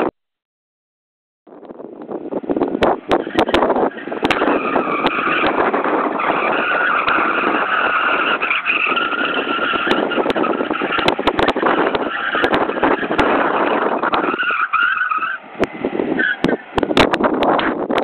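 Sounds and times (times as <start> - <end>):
car engine: 1.8 - 18.0
tyres squealing: 3.1 - 16.8.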